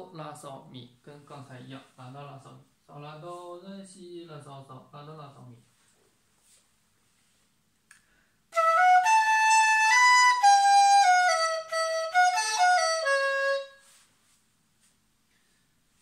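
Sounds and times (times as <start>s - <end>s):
bamboo flute melody: 8.5s - 14.0s.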